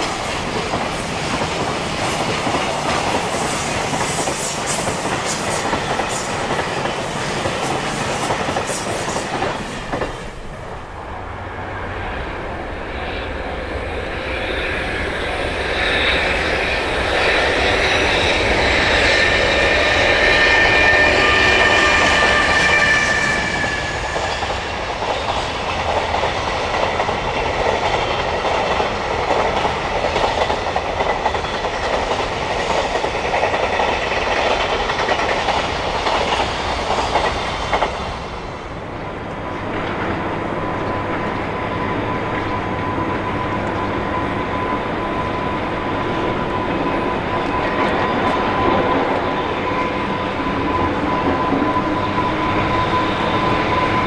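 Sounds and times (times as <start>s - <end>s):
electric locomotive whine and rumble: 0.0s - 54.0s.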